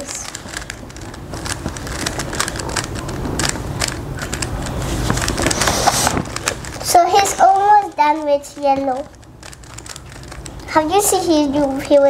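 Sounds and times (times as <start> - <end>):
plastic puzzle cube clicking: 0.0 - 10.7
rough rustling: 0.0 - 11.8.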